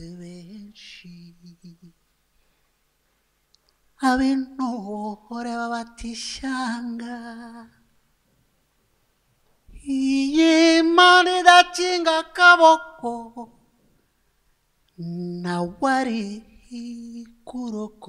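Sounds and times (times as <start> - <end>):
man singing unaccompanied: 0.0 - 2.0, 4.0 - 7.9, 9.7 - 13.8, 14.9 - 18.0.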